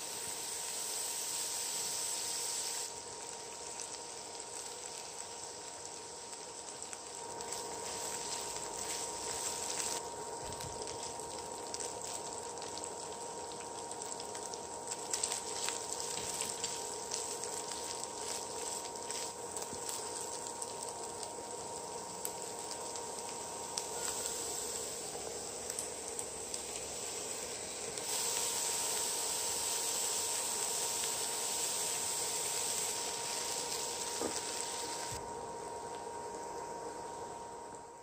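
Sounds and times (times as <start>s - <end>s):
food sizzling in a frying pan: 0.0s - 38.0s.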